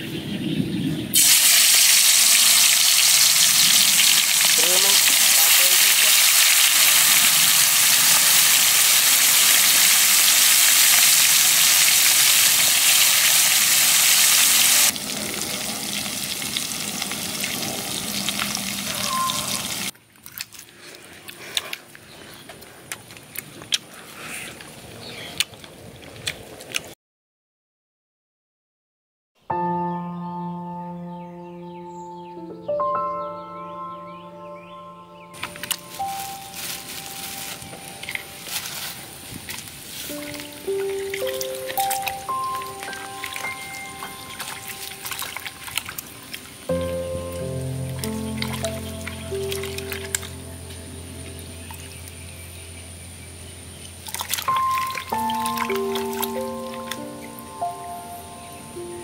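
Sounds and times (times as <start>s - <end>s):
deep-frying sizzle: 1.1s - 19.9s.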